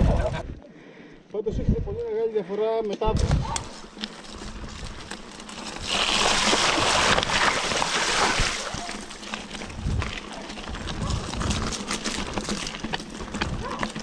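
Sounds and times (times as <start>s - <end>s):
bike tyres splashing through puddle: 3.6s - 14.0s
tyres rattling over loose stones: 3.6s - 14.0s.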